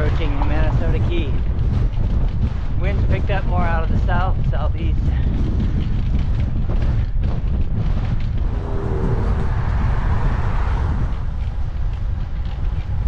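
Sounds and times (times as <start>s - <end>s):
wind buffeting microphone: 0.0s - 13.0s
car passing: 8.4s - 12.4s.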